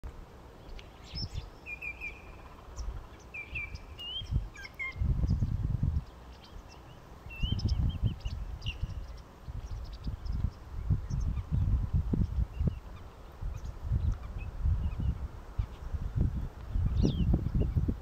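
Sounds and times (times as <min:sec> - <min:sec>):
bird whistled calls: 0:01.0 - 0:02.5, 0:03.3 - 0:05.0.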